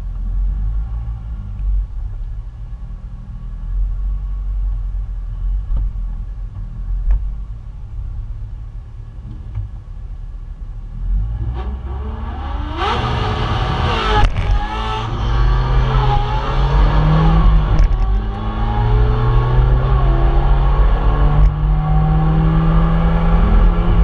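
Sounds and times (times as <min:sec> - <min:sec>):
engine idling low rumble: 0:00.0 - 0:11.4
engine revving: 0:11.0 - 0:24.0.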